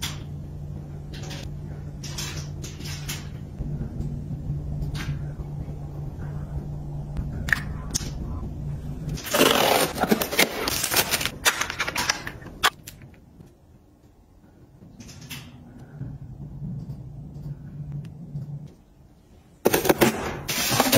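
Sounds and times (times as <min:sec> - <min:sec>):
steady low hum: 0:00.0 - 0:20.9
crinkly packaging rustling: 0:09.2 - 0:13.1.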